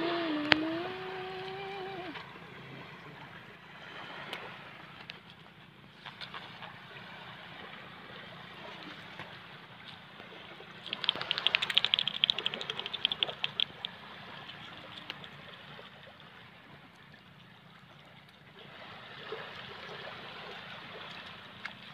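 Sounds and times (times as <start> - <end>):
wind: 0.0 - 21.9
rapid crackling clicks: 10.8 - 13.9.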